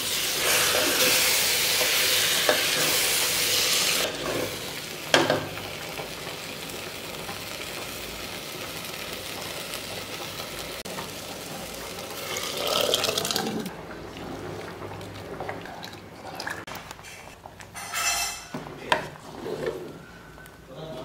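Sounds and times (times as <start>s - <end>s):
leaves sizzling in hot oil: 0.0s - 13.7s.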